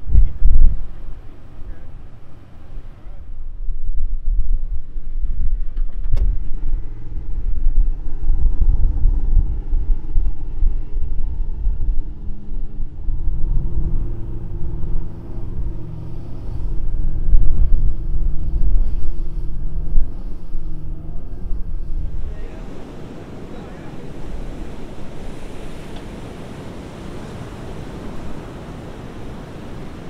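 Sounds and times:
truck engines revving under load: 6.3s - 30.0s.

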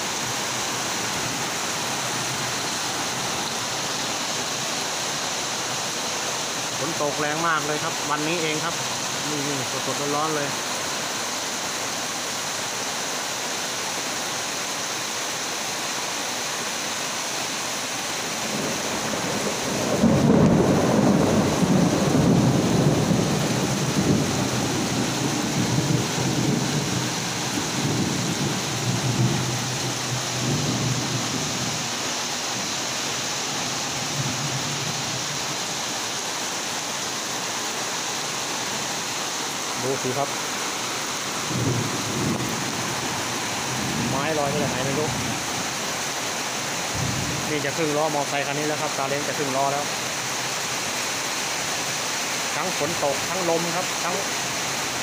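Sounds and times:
heavy rain pouring: 0.0s - 55.0s
thunder rumbling: 18.4s - 31.8s, 41.5s - 45.4s.

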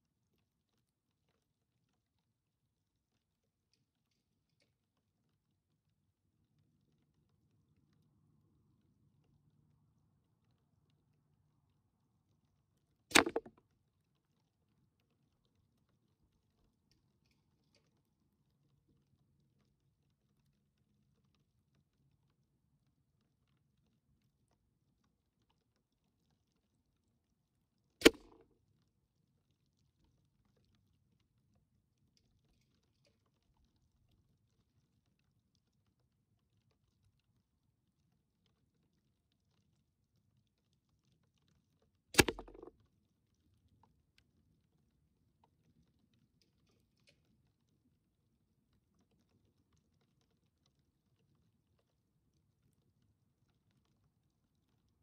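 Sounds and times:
faint irregular ticks: 0.0s - 55.0s
air rifle shot: 13.1s - 13.5s, 28.0s - 28.4s, 42.2s - 42.7s.

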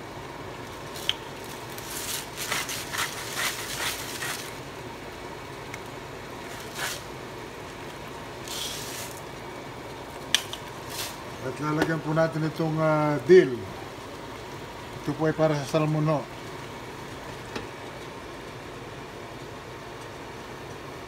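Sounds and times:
broth simmering in a pot: 0.0s - 21.0s
salt rustling hisses: 0.8s - 4.6s, 6.4s - 7.2s, 8.4s - 9.3s, 10.8s - 11.3s.

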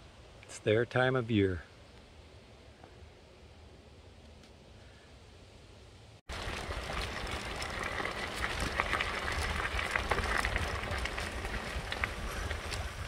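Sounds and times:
tyres crunching on gravel trail: 6.3s - 13.0s.

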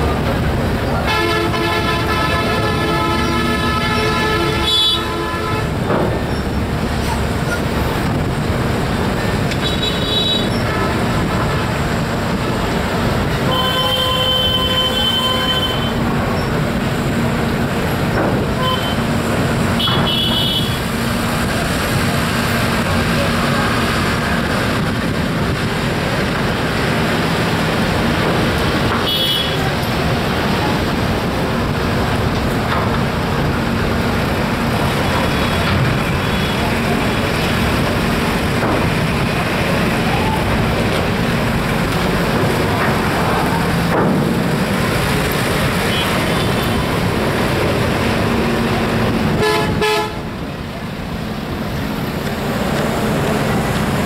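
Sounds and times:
traffic engine hum: 0.0s - 54.0s
vehicle horn toots: 1.1s - 5.7s, 13.5s - 16.0s, 18.6s - 19.0s, 19.8s - 20.8s, 29.0s - 29.6s, 49.4s - 50.2s
people's voices: 21.4s - 26.2s, 27.6s - 49.1s.

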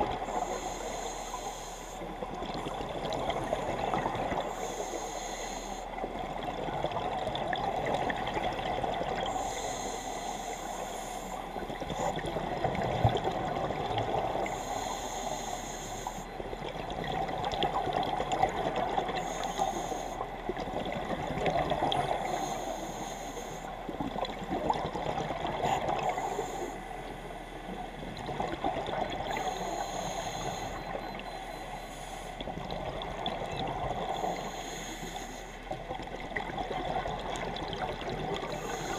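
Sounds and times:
scuba regulator breathing: 0.2s - 2.2s, 4.5s - 6.0s, 9.3s - 11.5s, 14.4s - 16.4s, 19.2s - 20.3s, 22.2s - 23.8s, 25.6s - 27.0s, 29.3s - 32.4s, 34.1s - 35.6s, 38.5s - 38.9s.

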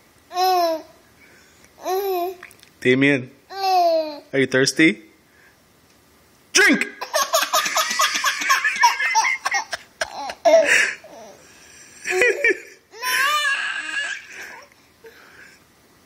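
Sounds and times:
baby laughing: 7.0s - 11.4s, 12.0s - 14.7s.

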